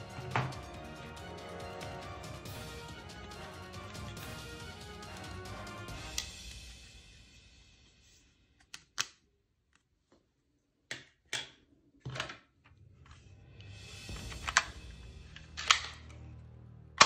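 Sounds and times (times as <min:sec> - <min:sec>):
background music: 0:00.0 - 0:08.1, 0:13.3 - 0:17.0.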